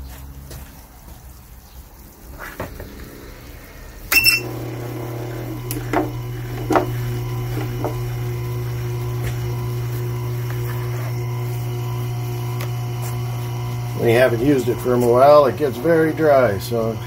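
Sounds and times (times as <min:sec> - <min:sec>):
sharpening machine motor humming: 0:04.1 - 0:17.0.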